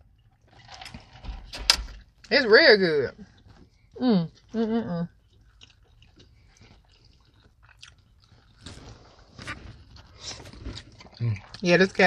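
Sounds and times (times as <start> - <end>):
people chewing: 3.2 - 12.0.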